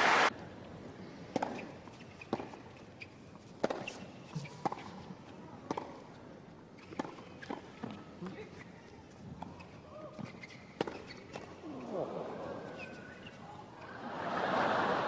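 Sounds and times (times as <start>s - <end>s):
applause: 0.0s - 0.3s
tennis ball strikes: 3.6s - 3.9s.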